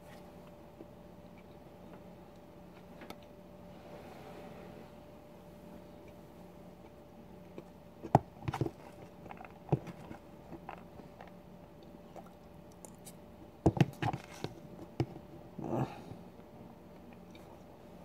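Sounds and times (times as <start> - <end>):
chewing: 8.6 - 13.2, 17.0 - 17.7.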